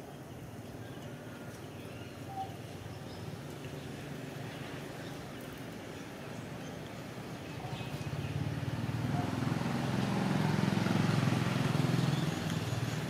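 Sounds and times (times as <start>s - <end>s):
vehicle engine passing by: 7.4s - 13.0s.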